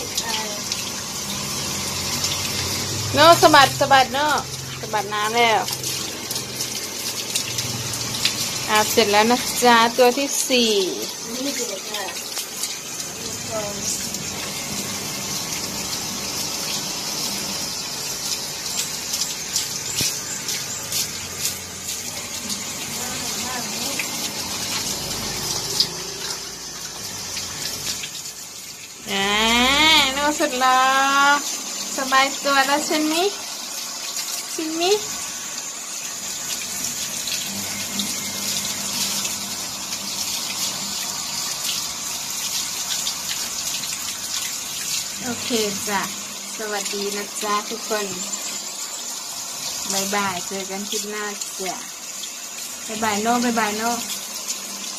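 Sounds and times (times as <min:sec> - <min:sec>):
hose water hissing: 0:00.0 - 0:54.9
water splashes and drips: 0:00.0 - 0:54.9.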